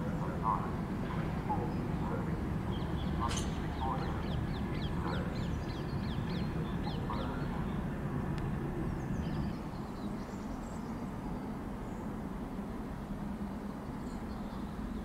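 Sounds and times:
steady low rumble: 0.0 - 13.4
bird chirping: 2.7 - 7.8.

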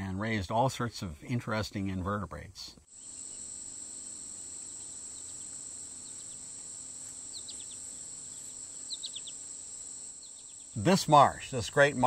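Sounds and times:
bird chirping: 2.9 - 12.0
insects trilling: 2.9 - 12.0.

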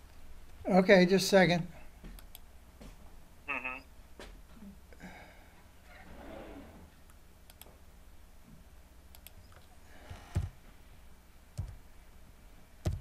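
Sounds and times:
computer mouse clicks: 7.1 - 7.8, 9.1 - 10.5.

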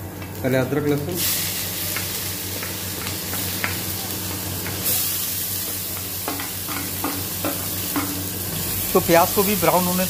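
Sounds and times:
food sizzling in hot oil: 0.9 - 10.0.

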